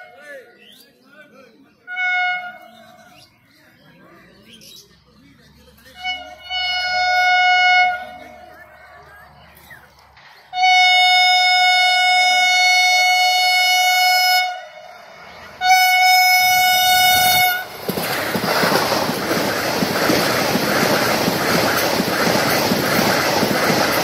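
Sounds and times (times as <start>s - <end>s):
train horn blasts: 1.9s - 2.8s, 6.0s - 8.5s, 10.5s - 17.8s
train rushing past: 6.0s - 24.0s
wheels clattering on rails: 16.5s - 24.0s.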